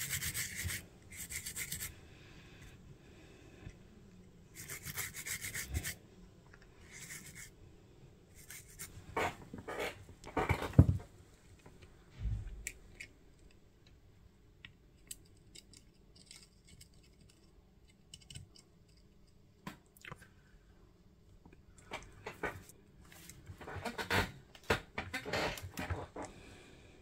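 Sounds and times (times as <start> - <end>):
toothbrush scrubbing circuit board: 0.0 - 1.9, 4.5 - 6.0, 6.9 - 7.5, 8.4 - 8.9
faint ticks and scratches: 14.6 - 19.4.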